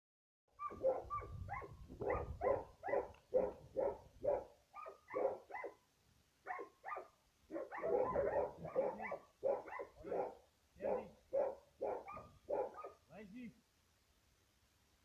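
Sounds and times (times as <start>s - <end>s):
dog barking: 0.6s - 5.8s, 6.4s - 13.1s.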